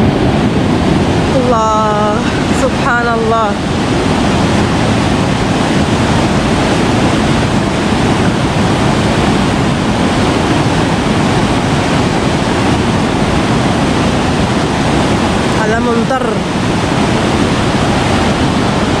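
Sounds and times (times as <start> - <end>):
river water rushing over weir: 0.0 - 19.0.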